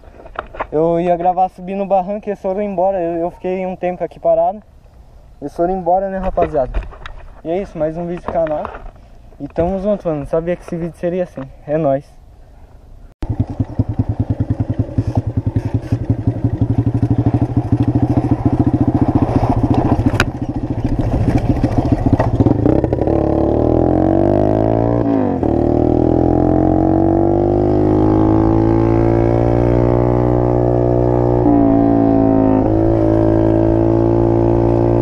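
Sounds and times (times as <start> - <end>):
motorcycle engine chugging: 13.2 - 24.0.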